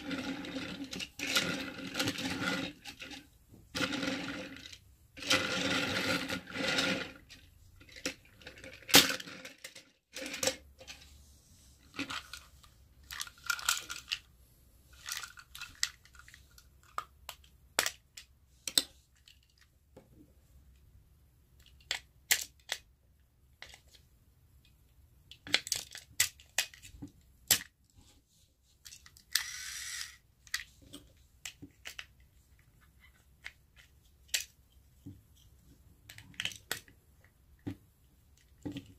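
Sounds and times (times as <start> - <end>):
plastic scraping: 0.0 - 11.0
plastic toy train clicks and rattles: 0.0 - 11.0, 11.9 - 14.3, 14.9 - 19.7, 21.6 - 22.9, 23.6 - 24.0, 25.3 - 27.7, 28.8 - 34.7, 36.0 - 37.0.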